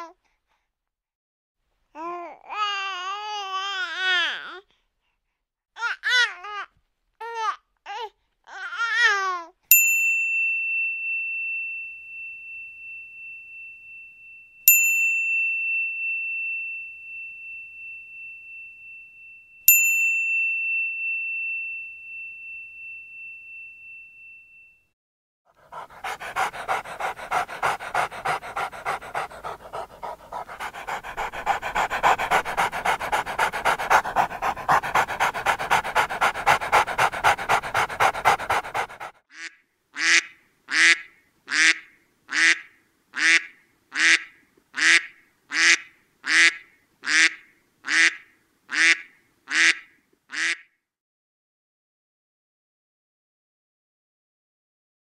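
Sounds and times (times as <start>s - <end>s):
dog panting: 25.6s - 39.2s
duck quack: 39.4s - 50.6s.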